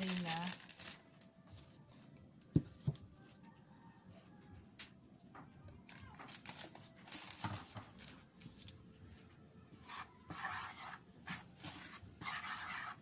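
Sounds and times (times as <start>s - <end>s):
plastic bag crinkling: 0.0s - 1.3s, 5.9s - 8.3s.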